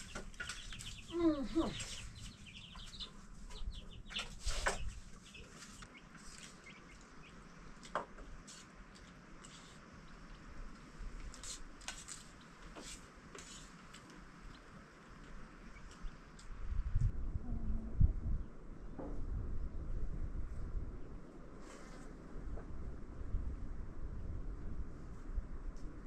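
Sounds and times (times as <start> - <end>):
chickens clucking: 0.0 - 7.9.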